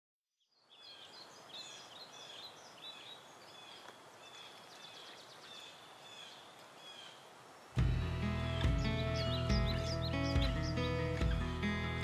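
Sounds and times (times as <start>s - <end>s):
birds chirping: 0.4s - 12.0s
faint outdoor hiss: 0.4s - 12.0s.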